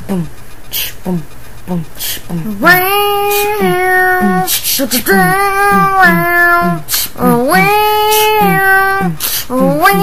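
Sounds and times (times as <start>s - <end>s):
child singing long notes: 2.5s - 10.0s.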